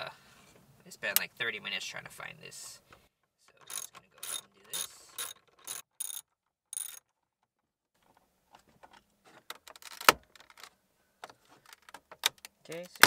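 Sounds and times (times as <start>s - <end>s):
ratcheting driver clicking: 3.6s - 6.2s.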